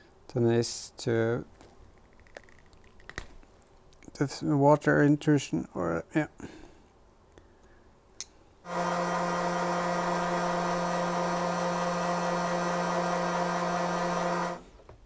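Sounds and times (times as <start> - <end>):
heat gun fan humming: 8.7 - 14.7.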